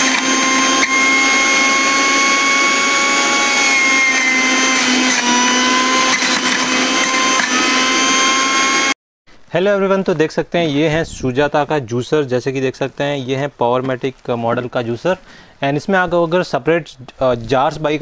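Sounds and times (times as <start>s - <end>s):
juicer motor whine: 0.0s - 9.0s.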